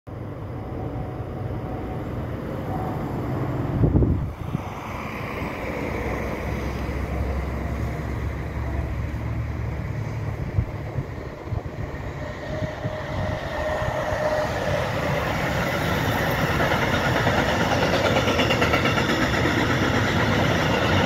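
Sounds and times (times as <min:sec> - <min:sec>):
approaching freight train: 0:00.1 - 0:21.0
wind buffeting microphone: 0:01.6 - 0:06.2, 0:10.1 - 0:21.0.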